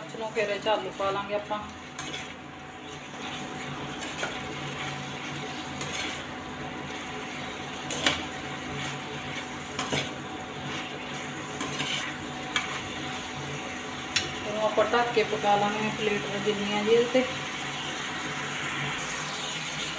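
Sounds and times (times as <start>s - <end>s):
gentle sizzle: 0.0s - 19.9s
metal spoon scraping pan: 1.9s - 2.4s, 3.2s - 6.3s, 7.4s - 13.0s.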